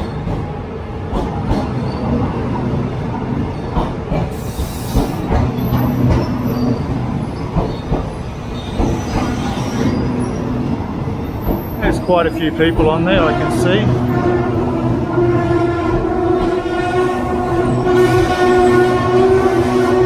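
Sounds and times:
rail clicks and knocks: 0.0s - 2.2s, 3.6s - 9.6s, 11.4s - 12.0s
train wheels rumbling on rails: 0.0s - 20.0s.

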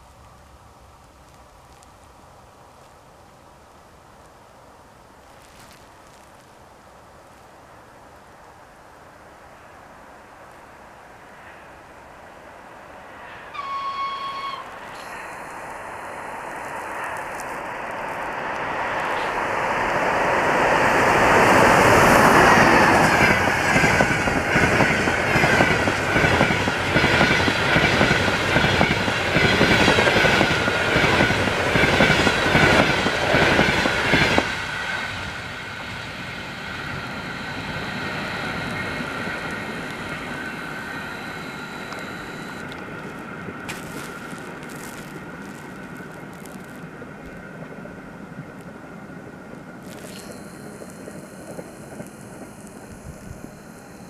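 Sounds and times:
train passing at speed: 8.9s - 54.0s
train rumble: 9.0s - 54.0s
steady high tone: 13.6s - 19.5s, 35.1s - 42.8s, 49.8s - 54.0s.

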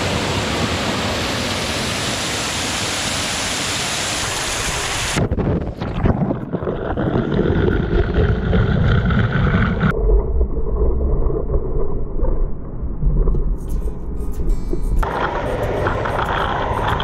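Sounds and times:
waterfall rushing: 0.0s - 5.2s, 15.0s - 17.0s
water buffeting microphone: 4.2s - 14.2s, 15.0s - 17.0s.

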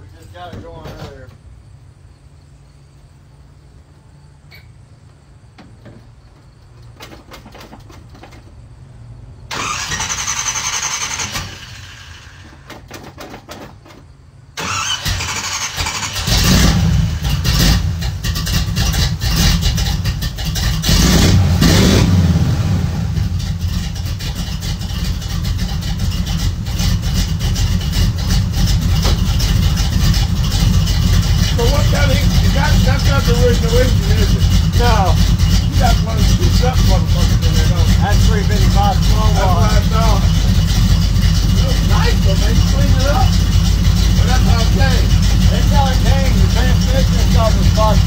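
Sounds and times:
engine cranking on starter: 9.5s - 14.0s, 14.6s - 48.0s
pickup engine running and revving: 16.1s - 48.0s.

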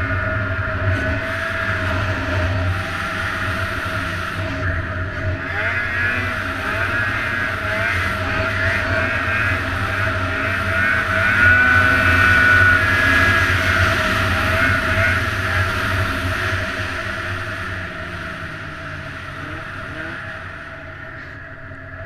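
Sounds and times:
high whine: 0.0s - 22.0s
snowmobile engine running: 0.0s - 22.0s.

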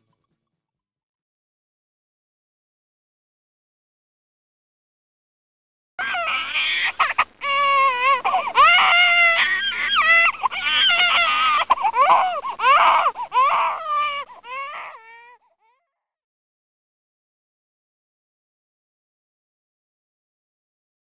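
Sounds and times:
baby crying: 6.0s - 15.9s.

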